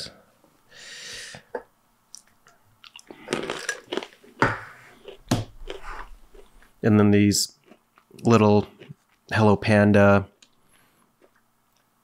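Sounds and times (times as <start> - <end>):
crunchy chewing: 5.0 - 6.7.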